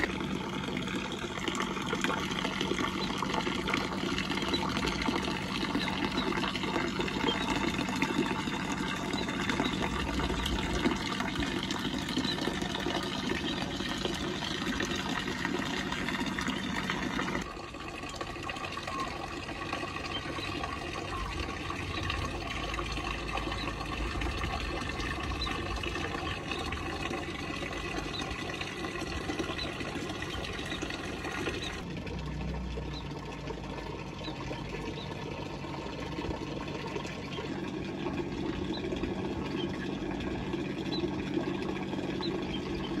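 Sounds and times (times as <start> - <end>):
faint steady hum: 0.0 - 43.0
fountain water splashing: 0.0 - 43.0
faint high chirps: 2.8 - 17.4.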